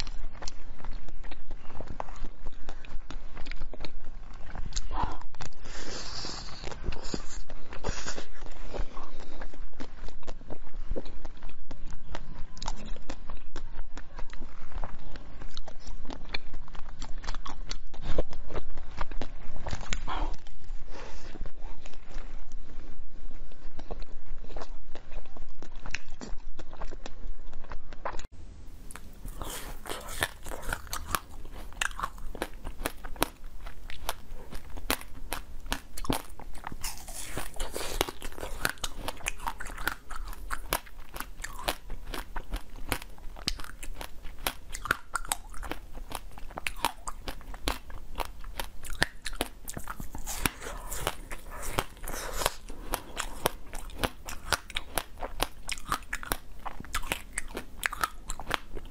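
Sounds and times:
crunching and chewing ice: 0.0s - 58.9s.

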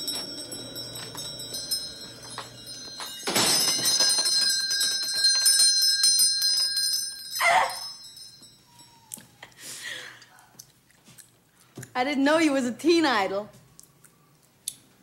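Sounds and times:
shop-door bell ringing: 0.0s - 9.1s.

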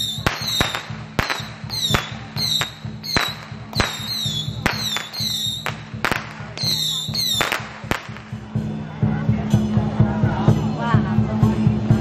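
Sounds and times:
high falling whistles: 0.0s - 5.7s
firecrackers banging: 0.0s - 8.9s.

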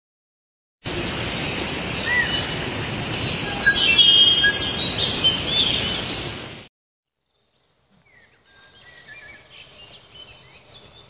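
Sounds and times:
birds chirping and whistling: 1.8s - 2.6s, 3.2s - 6.2s, 8.0s - 11.0s.

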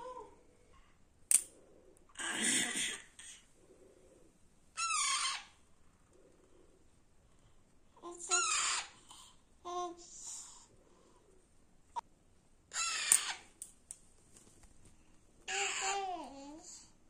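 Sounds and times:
sharp click: 1.3s - 1.5s
parakeet squawking: 4.8s - 5.6s, 8.3s - 9.0s, 12.7s - 13.5s.

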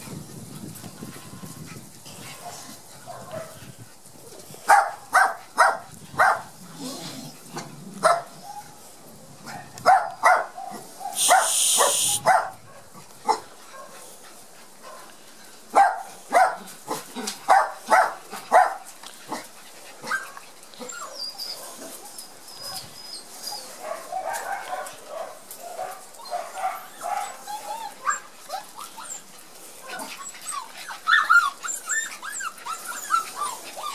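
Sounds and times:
dogs barking: 4.7s - 6.5s, 8.0s - 8.4s, 9.4s - 14.0s, 15.7s - 20.2s, 23.8s - 27.4s
hiss: 11.2s - 12.2s
dog yipping and whining: 11.2s - 12.4s, 20.0s - 23.8s, 26.2s - 29.3s, 29.9s - 33.9s.

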